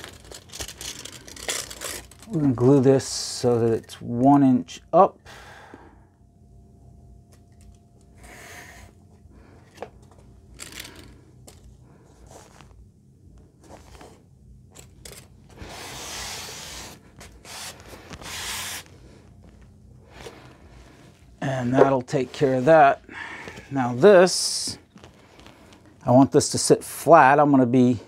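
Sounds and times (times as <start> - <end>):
foam rubbing: 15.6 - 18.9.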